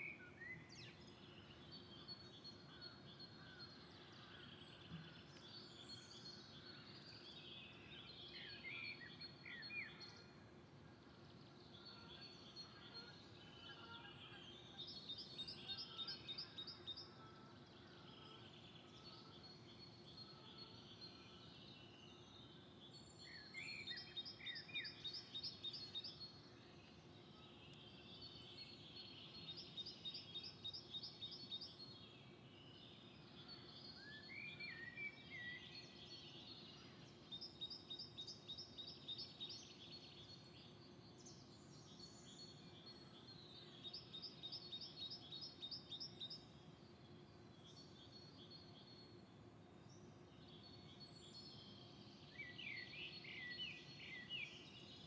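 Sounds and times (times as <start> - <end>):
faint steady hum: 14.4 - 55.0.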